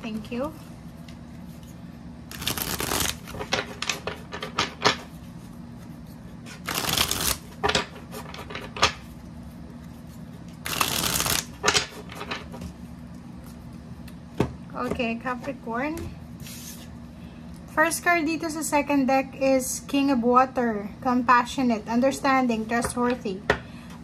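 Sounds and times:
cards being shuffled: 1.3 - 9.0, 9.8 - 12.6.

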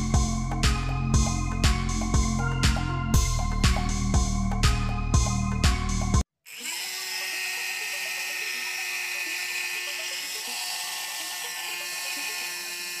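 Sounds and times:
background music: 0.0 - 6.2
small fan motor whine: 6.6 - 13.0.

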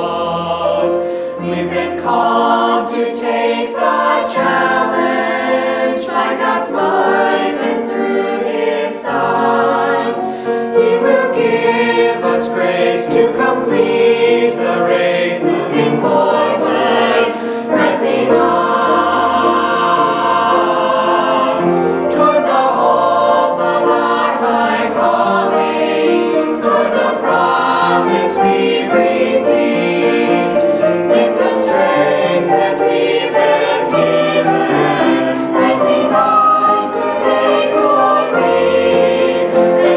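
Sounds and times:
choir singing a hymn: 0.0 - 39.9.

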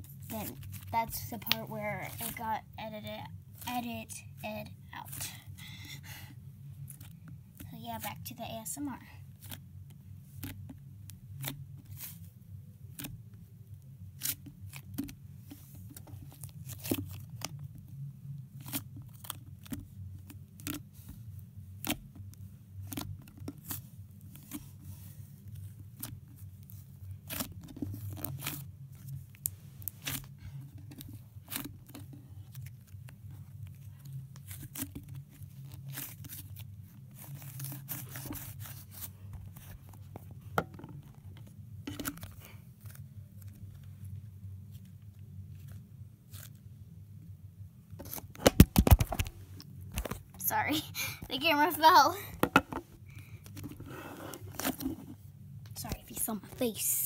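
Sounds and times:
low steady hum: 0.0 - 57.0.

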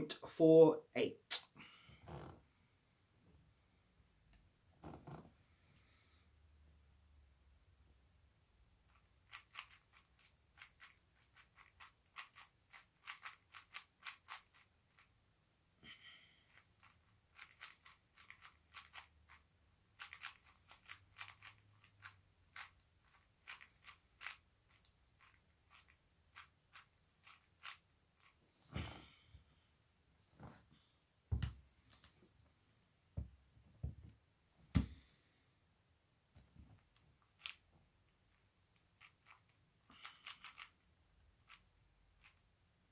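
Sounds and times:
plastic puzzle cube clicking: 8.9 - 15.1, 16.5 - 28.4, 37.3 - 37.6, 39.0 - 40.8.

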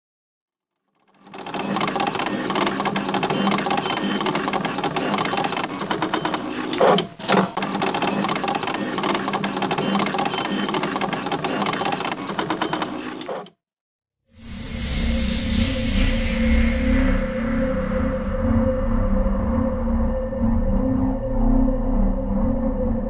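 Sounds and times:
rapid mechanical clicking: 1.0 - 13.5.

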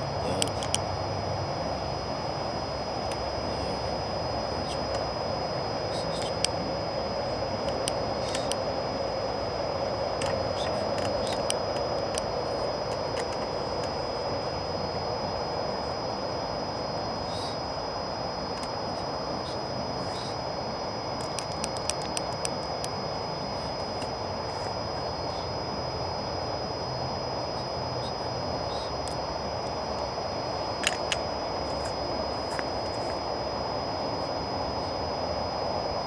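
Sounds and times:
high-pitched whine: 0.0 - 36.0
small clicks: 0.4 - 0.8, 30.8 - 31.2.

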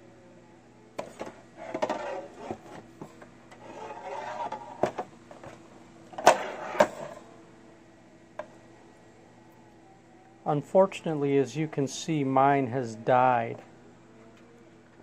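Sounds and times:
faint low hum: 0.0 - 15.0
plastic scraping and rubbing: 1.0 - 5.6, 6.2 - 7.2.

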